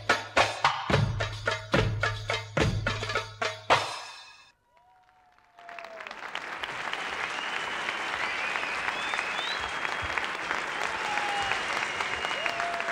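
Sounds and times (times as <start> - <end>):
audience applause: 4.7 - 12.9.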